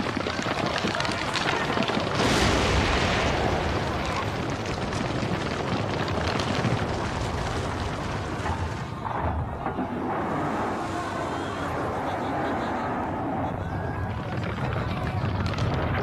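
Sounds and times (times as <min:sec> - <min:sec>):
low rumble with crackling: 0:00.0 - 0:16.0
sudden loud burst: 0:02.2 - 0:04.4.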